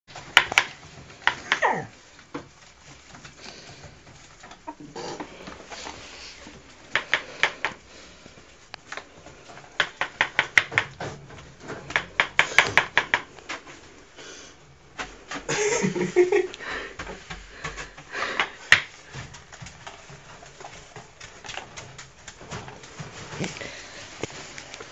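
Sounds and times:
ferrets dooking: 3.5 - 7.8.

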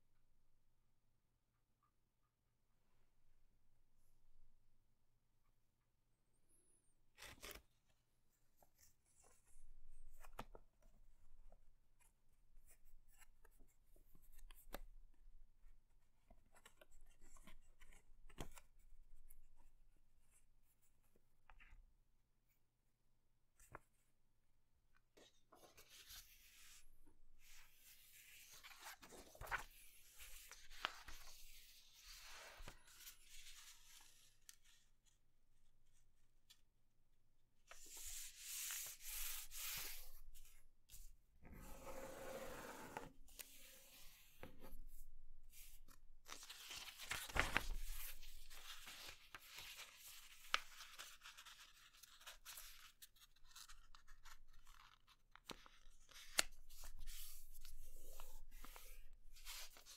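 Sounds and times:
paper rustling and creasing: 25.4 - 35.2, 45.5 - 59.9.

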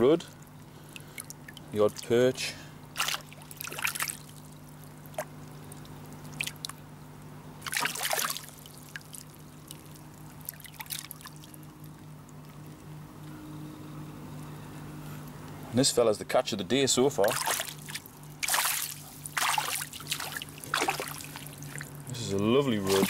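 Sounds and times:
low steady hum: 0.0 - 23.0
water splashing and dripping: 3.0 - 6.8, 7.6 - 12.6, 17.2 - 22.0.

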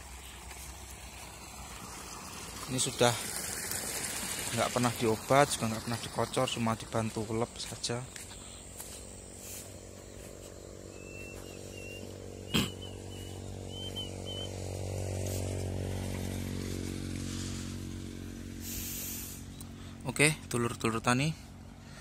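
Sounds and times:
small engine running: 0.0 - 22.0
faint high chirps: 10.9 - 14.5.

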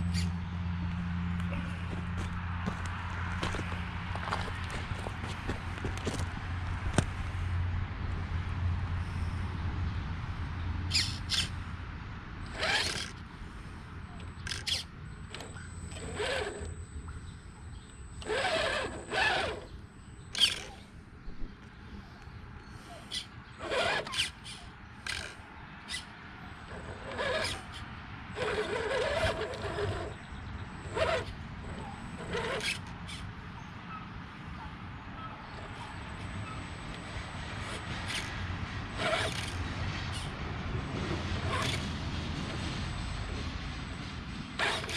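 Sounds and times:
tyres scraping on rock: 1.5 - 7.1, 15.4 - 16.7, 18.2 - 19.7, 23.1 - 26.0, 26.7 - 30.2, 30.8 - 33.2, 37.6 - 40.2
electric motor and gear whine: 12.4 - 21.7, 22.8 - 33.6, 35.4 - 44.9.

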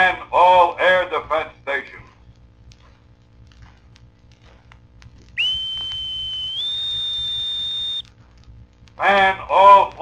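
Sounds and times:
boatswain's pipe whistle: 5.4 - 8.1
loudspeaker hiss: 9.0 - 10.0.

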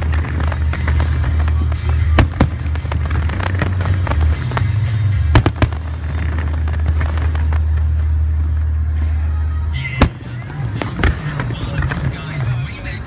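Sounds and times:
fireworks crackling: 0.0 - 13.0
loud fireworks bangs: 0.0 - 13.0.

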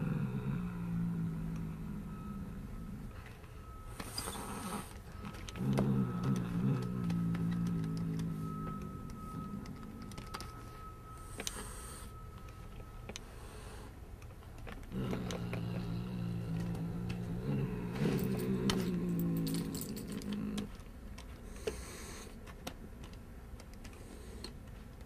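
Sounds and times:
loud low drone: 14.9 - 20.7.

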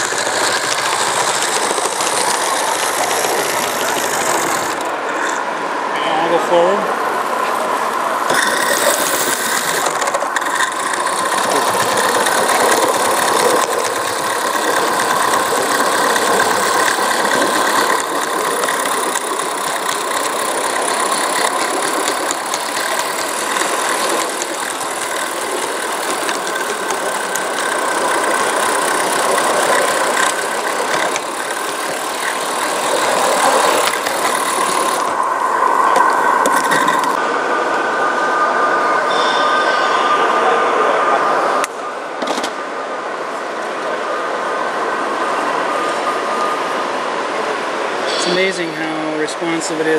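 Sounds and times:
steam hissing: 0.0 - 5.6, 7.4 - 37.2, 47.8 - 49.9
locomotive mechanical chatter: 0.0 - 37.2, 45.4 - 49.9.

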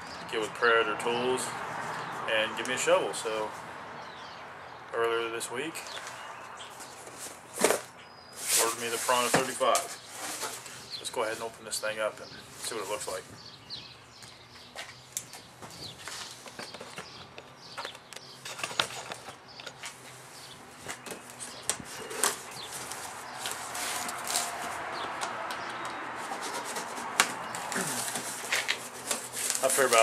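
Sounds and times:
cardboard clicks and scrapes: 20.8 - 30.0
blade scraping cardboard: 25.8 - 29.8.

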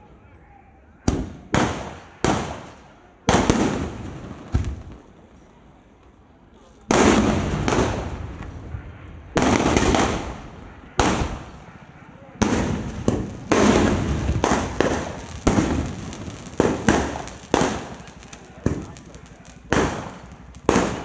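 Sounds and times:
firework shells bursting: 6.9 - 21.0.

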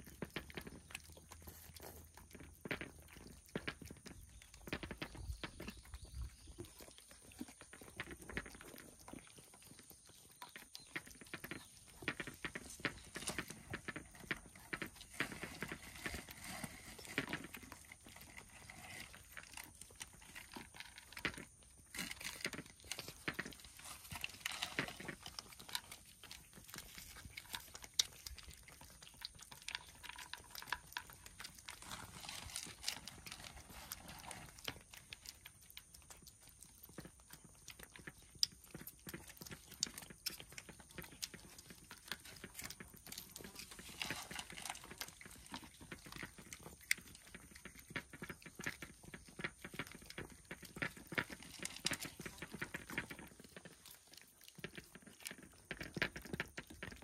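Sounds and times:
cats chewing and crunching: 0.0 - 57.0.

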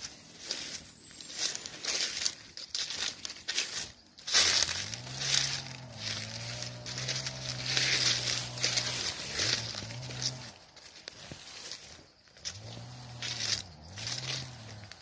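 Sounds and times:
footsteps crunching dry leaves: 0.0 - 15.0.

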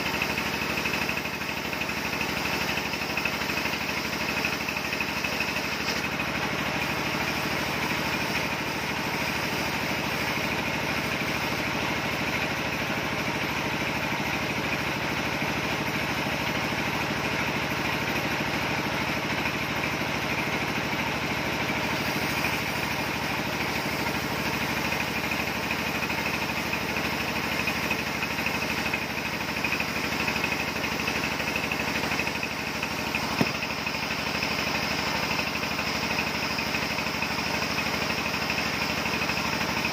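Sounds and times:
circular saw and engine running: 0.0 - 39.9
short knock: 33.4 - 33.6.

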